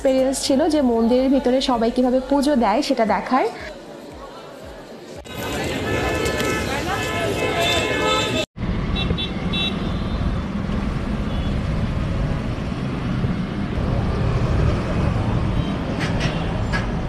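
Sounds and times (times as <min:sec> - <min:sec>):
motor vehicles rumbling: 0:05.2 - 0:17.0.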